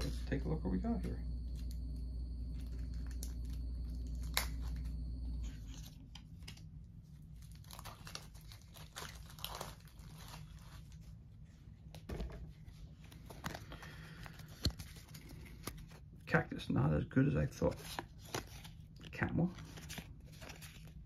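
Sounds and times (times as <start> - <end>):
low steady hum: 0.0 - 21.0
wrapping crinkling and tearing: 2.5 - 11.6, 17.6 - 21.0
cards rustling and tapping: 17.6 - 21.0.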